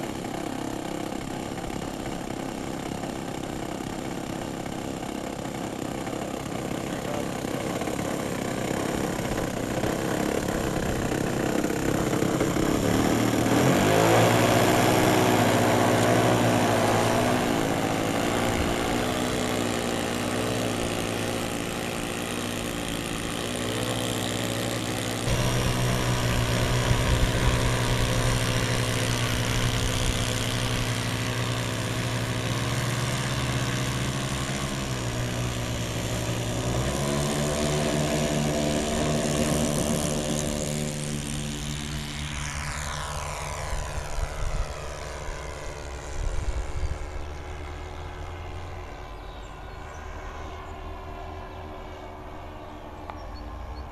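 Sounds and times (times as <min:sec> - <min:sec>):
model plane engines running: 0:00.0 - 0:53.9.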